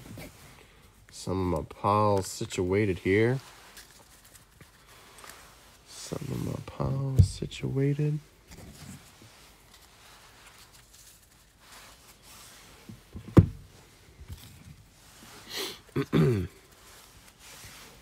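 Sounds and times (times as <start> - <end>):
cards shuffling: 3.6 - 5.4.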